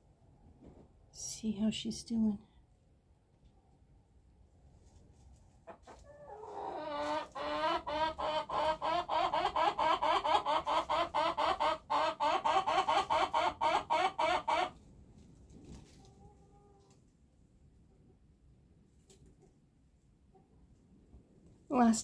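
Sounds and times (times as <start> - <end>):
chicken clucking rapidly: 5.5 - 14.8.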